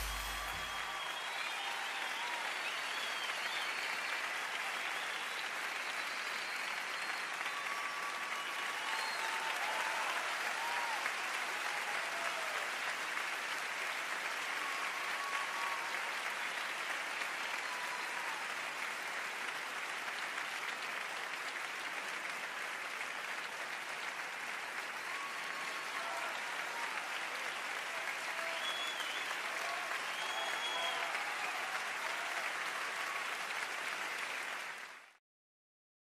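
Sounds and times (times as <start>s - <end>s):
audience applauding: 0.0s - 35.2s
faint shouts or whistles: 28.4s - 31.2s.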